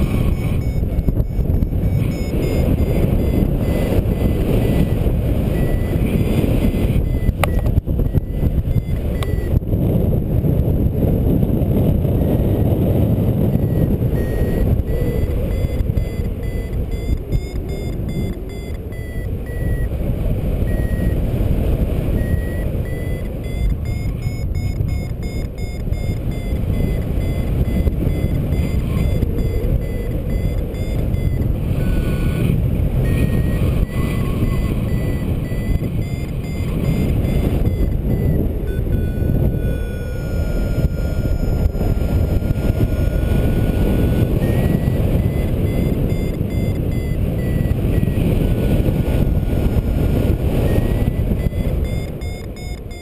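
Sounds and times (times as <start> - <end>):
variometer beeping: 0.0 - 10.7, 11.5 - 53.0
wind buffeting microphone: 0.0 - 53.0.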